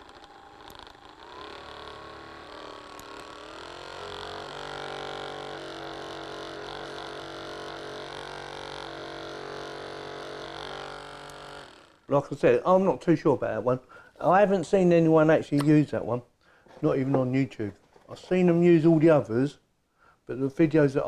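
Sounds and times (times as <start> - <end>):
massage gun motor humming: 0.0 - 12.1.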